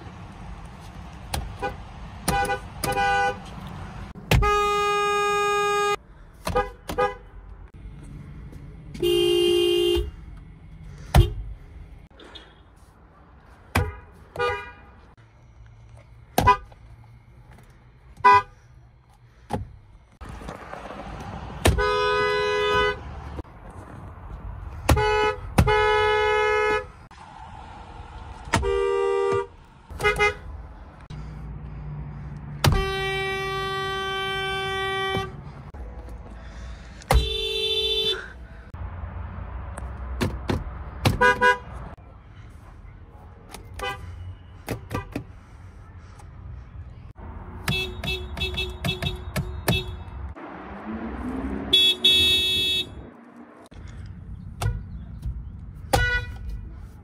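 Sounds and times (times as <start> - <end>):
car horns honking: 1.3 - 7.7, 8.9 - 10.3, 11.0 - 11.5, 13.7 - 15.2, 16.3 - 16.8, 18.2 - 18.6, 21.6 - 23.4, 24.8 - 27.0, 28.5 - 30.6, 32.6 - 38.4, 41.0 - 42.0, 43.5 - 45.3, 47.5 - 53.2, 55.8 - 56.7.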